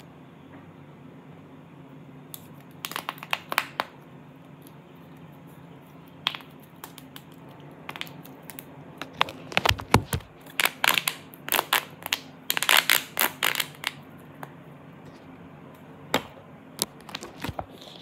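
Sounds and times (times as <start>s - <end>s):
pop tube toy crackling: 2.4s - 4.0s, 6.2s - 14.0s.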